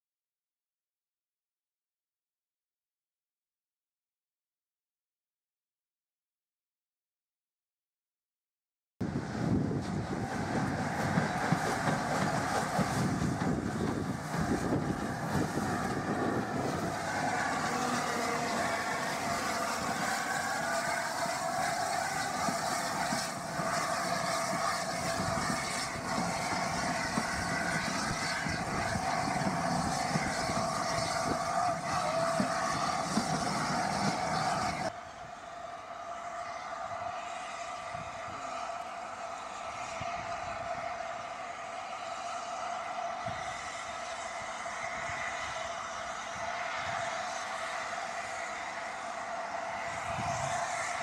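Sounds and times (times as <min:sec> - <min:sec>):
wind buffeting microphone: 0:09.0 - 0:34.9, 0:49.9 - 0:51.0
train wheels rumbling on rails: 0:09.0 - 0:35.2, 0:35.8 - 0:51.0.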